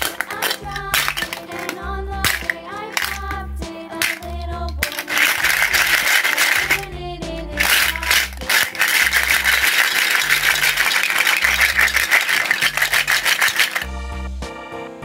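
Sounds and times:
plastic toys rattling in basket: 0:00.0 - 0:03.4, 0:04.0 - 0:13.9
background music with bass line: 0:01.8 - 0:04.8, 0:06.7 - 0:07.6, 0:13.9 - 0:15.0.

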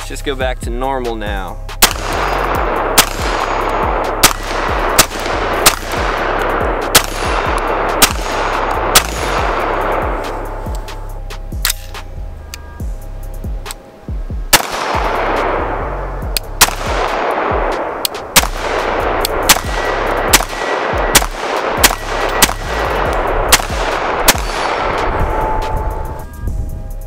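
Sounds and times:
rifle shots: 0:01.8 - 0:11.0, 0:14.5 - 0:26.2.

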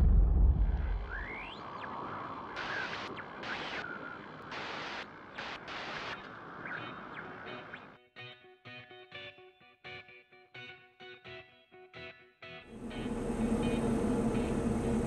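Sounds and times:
deep boom: 0:00.0 - 0:01.3
glitchy static bursts: 0:02.6 - 0:06.7.

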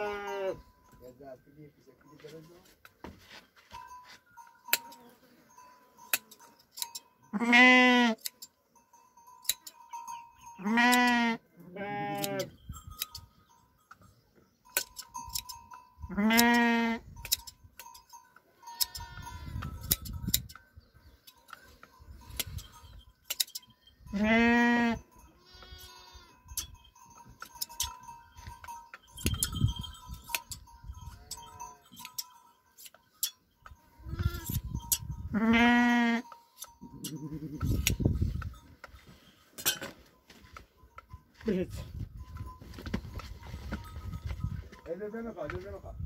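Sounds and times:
sheep bleating: 0:00.0 - 0:00.6, 0:07.3 - 0:08.2, 0:10.6 - 0:12.5, 0:16.1 - 0:17.0, 0:24.1 - 0:26.4, 0:34.0 - 0:34.6, 0:35.3 - 0:36.3
shear blades snipping: 0:09.4 - 0:09.8, 0:14.8 - 0:15.6, 0:17.2 - 0:18.0, 0:23.2 - 0:23.7, 0:32.0 - 0:33.4.

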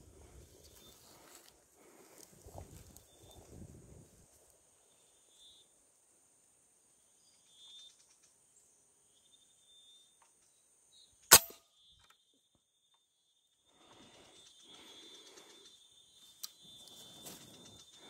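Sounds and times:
faint high chirping: 0:04.7 - 0:05.8, 0:06.9 - 0:18.0
rifle shot: 0:11.3 - 0:11.6.

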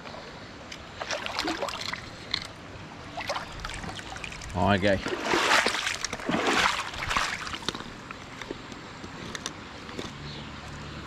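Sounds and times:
net splashing through water: 0:03.2 - 0:07.9.

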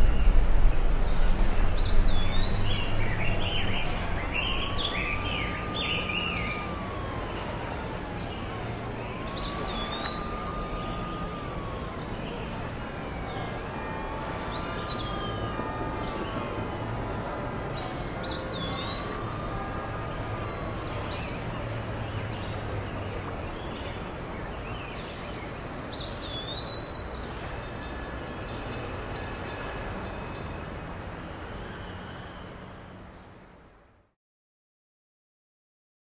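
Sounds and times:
steady rumbling ambient noise: 0:00.0 - 0:05.2.

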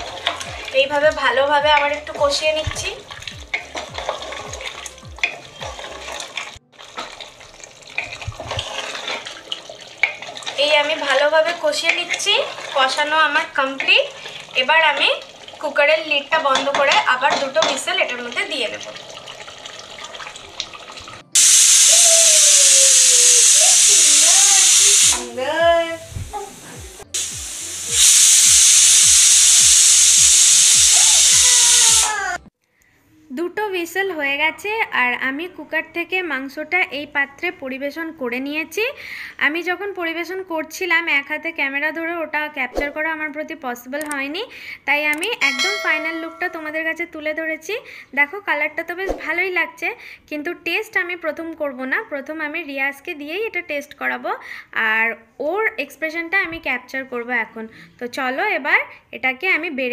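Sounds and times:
curry sizzling: 0:00.0 - 0:32.5
pressure cooker whistling: 0:21.4 - 0:25.2, 0:27.2 - 0:32.4.

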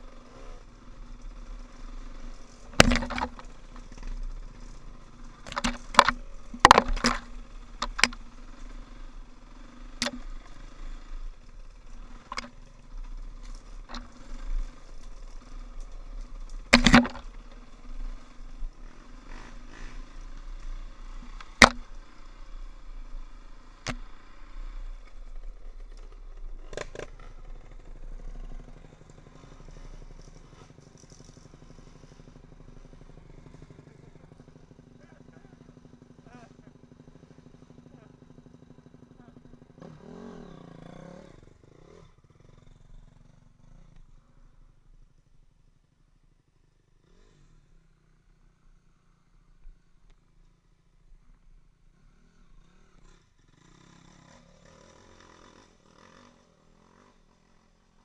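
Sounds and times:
dirt bike engine running: 0:00.0 - 0:58.0
bike knocking and clattering: 0:02.6 - 0:04.2, 0:05.3 - 0:08.3, 0:15.7 - 0:17.6, 0:21.2 - 0:22.0.

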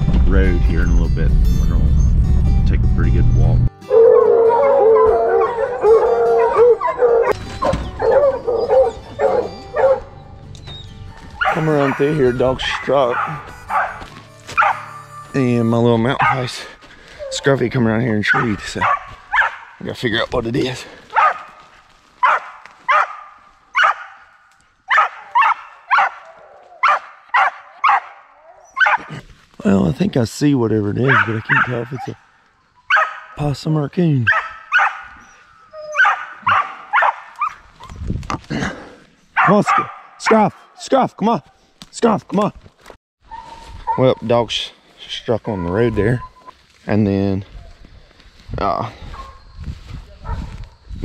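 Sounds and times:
hounds baying: 0:03.8 - 0:19.9, 0:20.7 - 0:29.2, 0:31.0 - 0:33.4, 0:34.2 - 0:38.0, 0:39.3 - 0:40.7, 0:45.2 - 0:46.4, 0:49.0 - 0:49.5
dog barking with echo: 0:03.9 - 0:10.1, 0:11.4 - 0:14.0, 0:14.6 - 0:14.9, 0:16.1 - 0:16.5, 0:18.2 - 0:19.8, 0:21.1 - 0:21.6, 0:22.2 - 0:24.3, 0:24.9 - 0:29.1, 0:31.0 - 0:32.2, 0:32.9 - 0:33.4, 0:34.3 - 0:35.2, 0:36.0 - 0:37.6, 0:39.4 - 0:40.5.

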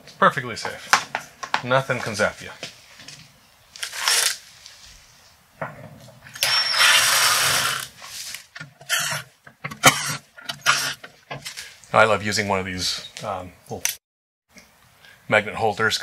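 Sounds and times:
cordless driver whining: 0:06.3 - 0:08.0, 0:08.6 - 0:11.1.

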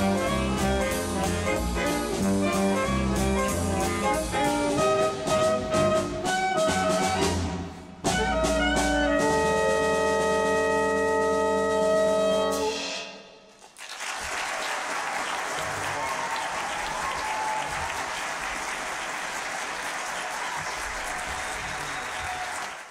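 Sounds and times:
audience applauding: 0:13.6 - 0:22.9.

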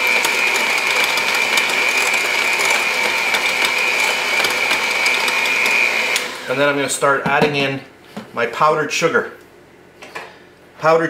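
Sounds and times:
electric hand mixer whining: 0:00.0 - 0:06.8.

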